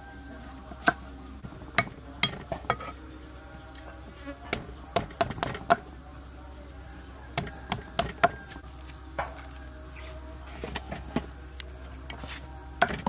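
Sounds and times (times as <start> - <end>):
cleaver chopping on wooden block: 4.5 - 5.8, 7.4 - 8.6, 12.8 - 13.0.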